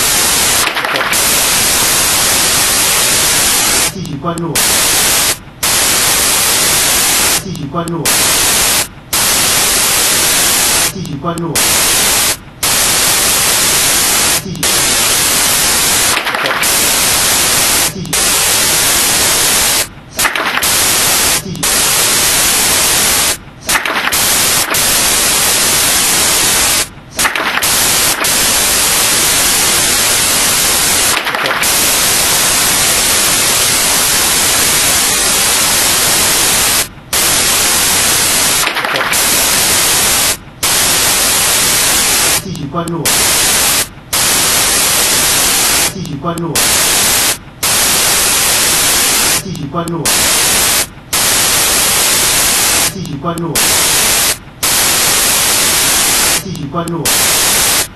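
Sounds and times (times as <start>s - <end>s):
static hiss: 0.0s - 57.9s.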